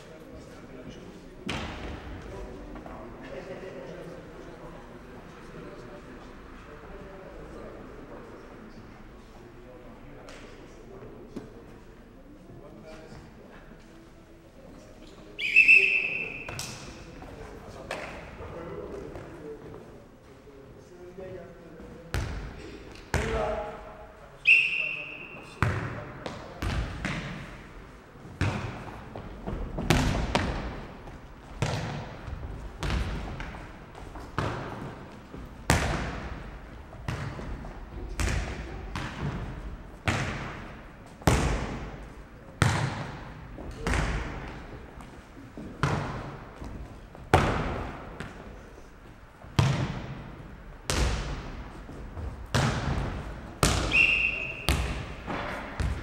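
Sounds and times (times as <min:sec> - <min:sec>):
ball thuds echoing in hall: 0:01.4 - 0:03.1, 0:15.3 - 0:19.8, 0:21.8 - 0:56.0.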